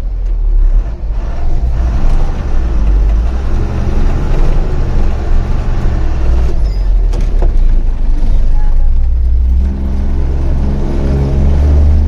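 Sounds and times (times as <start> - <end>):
truck engine rumbling: 0.0 - 12.0.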